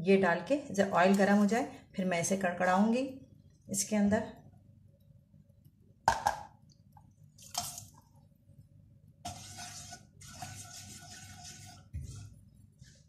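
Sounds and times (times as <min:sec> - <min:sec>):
spatula stirring: 0:09.2 - 0:13.0.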